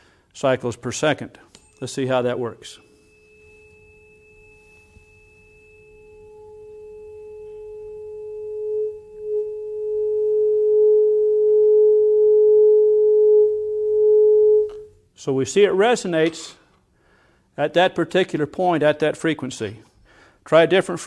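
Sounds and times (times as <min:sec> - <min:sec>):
tuning fork pure tone: 0:02.8 - 0:14.9.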